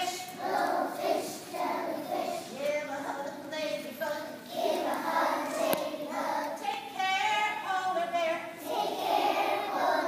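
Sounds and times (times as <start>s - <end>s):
children's choir singing: 0.0s - 7.6s, 8.5s - 10.0s.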